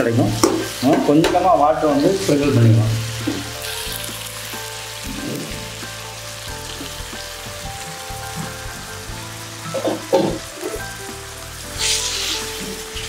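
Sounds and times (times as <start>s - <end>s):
chicken sizzling in a pan: 0.0s - 13.0s
water spitting and boiling off: 0.2s - 6.0s, 9.6s - 11.0s, 11.6s - 13.0s.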